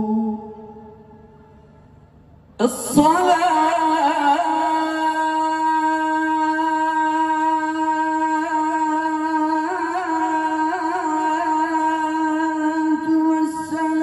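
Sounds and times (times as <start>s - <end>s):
man chanting through loudspeaker: 0.0s - 1.2s, 2.6s - 14.0s.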